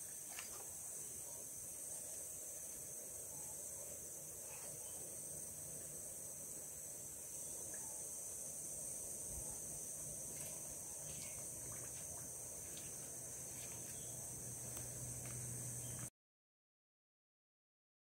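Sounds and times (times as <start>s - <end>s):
high-pitched insect chorus: 0.0s - 16.1s
faint ticks: 14.6s - 16.1s.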